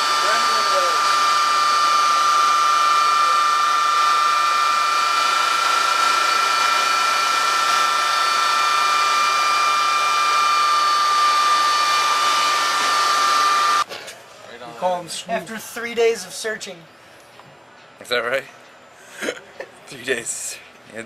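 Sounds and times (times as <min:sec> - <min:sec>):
helicopter machine whine: 0:00.0 - 0:13.9.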